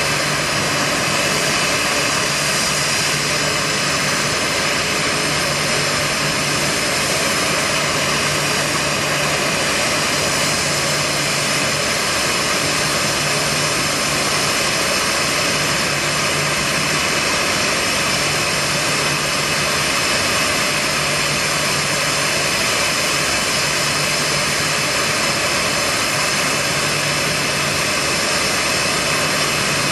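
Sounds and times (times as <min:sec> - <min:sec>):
jet engines idling: 0:00.0 - 0:29.9.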